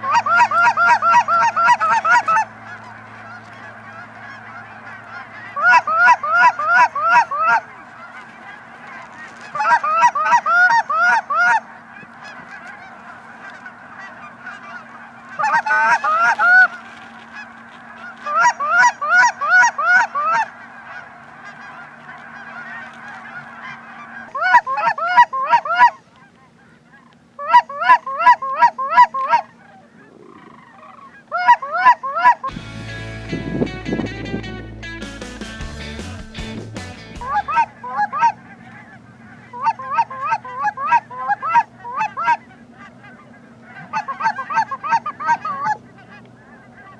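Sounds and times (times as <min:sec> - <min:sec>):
goose honking: 0:00.0 - 0:46.9
music: 0:32.5 - 0:37.6.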